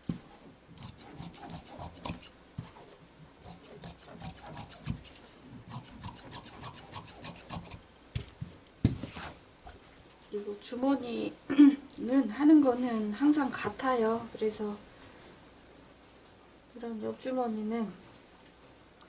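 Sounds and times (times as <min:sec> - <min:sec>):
shears snipping fabric: 0:00.8 - 0:07.8.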